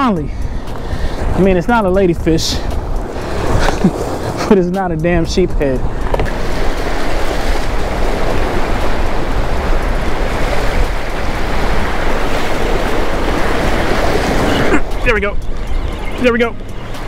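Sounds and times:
wind rumbling on microphone: 0.0s - 17.0s
surf breaking over rocks: 5.6s - 15.3s.

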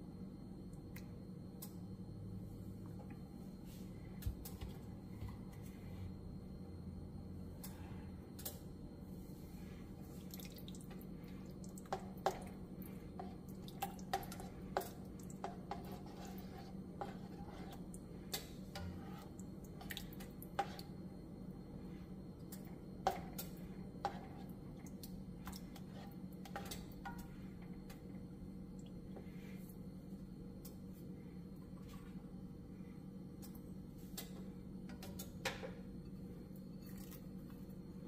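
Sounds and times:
steady low hum: 0.0s - 38.0s
spatula clicking and scraping pan: 11.9s - 21.0s, 22.5s - 24.6s, 25.4s - 28.0s.

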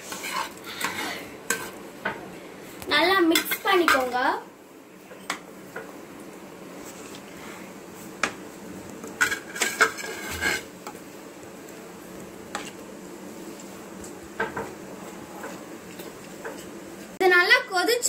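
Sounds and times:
ladle stirring thick gravy: 0.0s - 1.8s, 9.0s - 11.0s, 12.1s - 17.2s.

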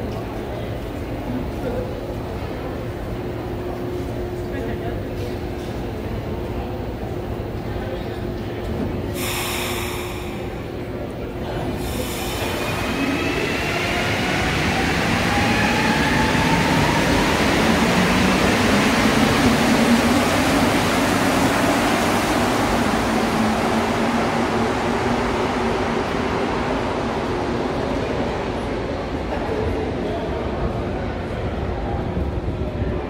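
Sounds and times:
train rushing noise: 8.6s - 33.0s.

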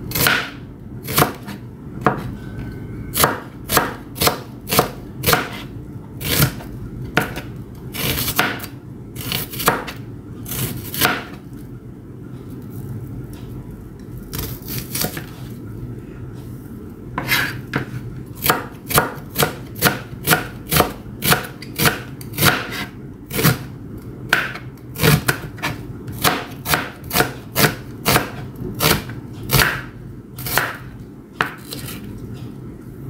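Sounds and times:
knife chopping on cutting board: 0.1s - 2.3s, 3.2s - 6.6s, 7.2s - 11.4s, 17.2s - 23.7s, 24.3s - 32.0s.

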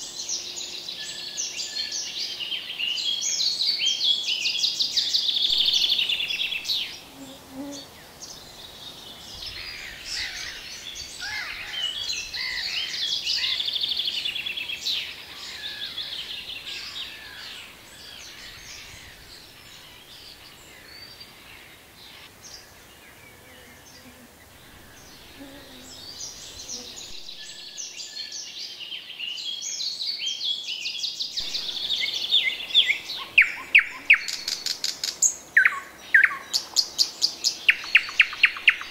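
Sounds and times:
songbirds singing in chorus: 0.0s - 38.9s
nightingale singing sharp notes: 3.8s - 7.1s, 30.3s - 38.9s.

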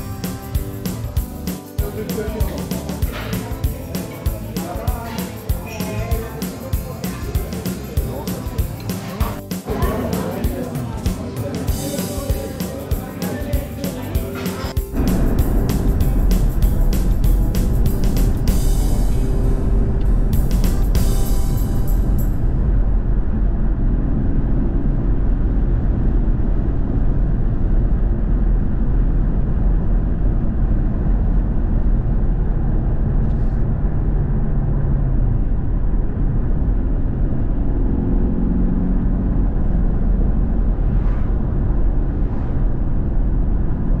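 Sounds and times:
car engine running: 14.8s - 43.9s.

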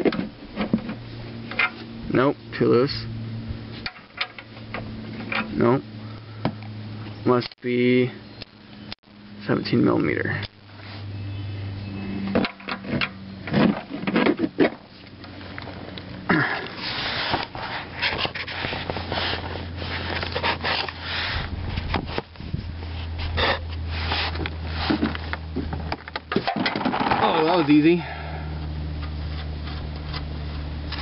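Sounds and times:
steady low hum: 0.0s - 31.0s
rubbing handling noise: 16.7s - 28.0s.

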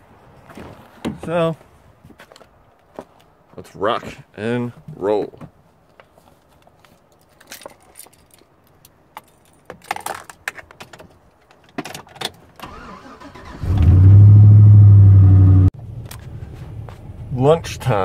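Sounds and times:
keys jangling in ignition: 7.2s - 10.4s
truck engine starting and running: 12.6s - 18.0s.

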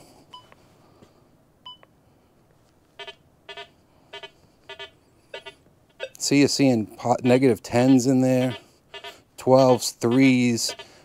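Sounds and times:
metal detector beep: 3.0s - 6.2s, 7.2s - 11.0s
low buzzy detector tones: 3.0s - 6.3s.

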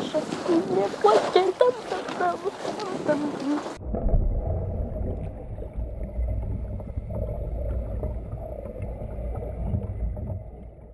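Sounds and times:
water sloshing and splashing: 0.0s - 10.9s.

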